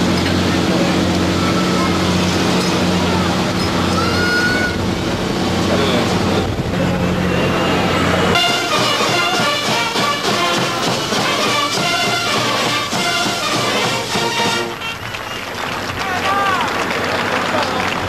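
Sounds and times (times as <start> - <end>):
ship's horn deep blast: 0.0 - 15.3
music with voices: 8.4 - 15.0.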